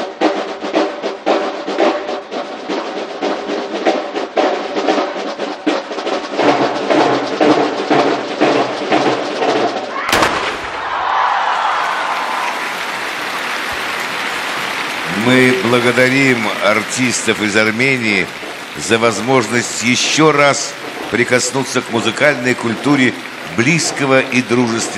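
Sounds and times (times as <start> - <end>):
marching snare drums: 0.0 - 10.9, 12.2 - 24.9
crowd applause: 10.0 - 24.9.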